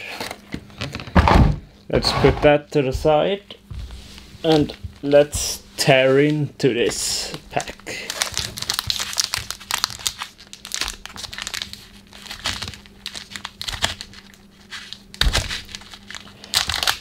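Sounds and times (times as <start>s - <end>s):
foil wrapper crinkling and tearing: 7.2s - 17.0s.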